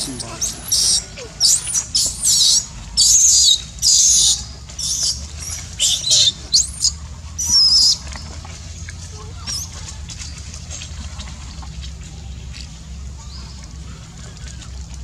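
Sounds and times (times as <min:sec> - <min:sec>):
baby monkey screaming: 0:00.0 - 0:08.0.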